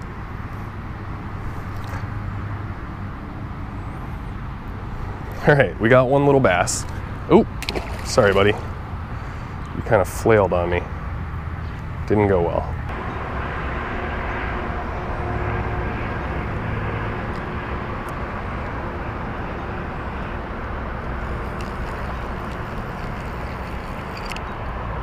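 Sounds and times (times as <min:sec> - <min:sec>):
fishing reel clicks: 0:21.4 - 0:24.4.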